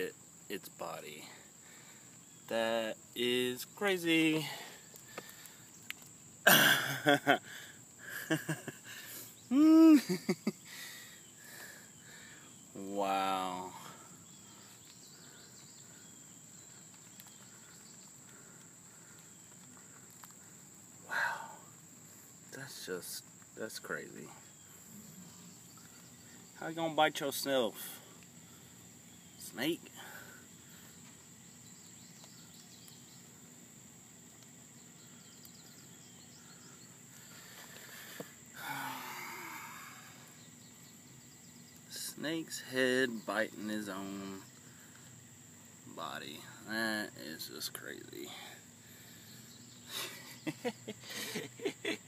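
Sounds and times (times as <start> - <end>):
high-pitched insect drone: 6.7 - 21.8, 34.7 - 45.0.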